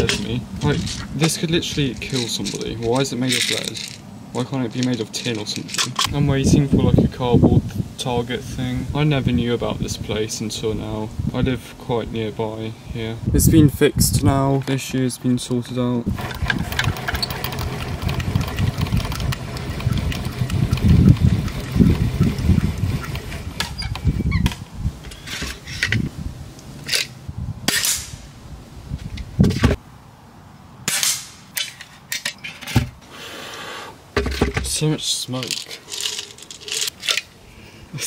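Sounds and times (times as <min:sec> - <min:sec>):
handling noise rumbling: 0:00.0 - 0:07.7, 0:13.2 - 0:29.8
air pistol shots: 0:27.7 - 0:28.2, 0:30.9 - 0:31.6.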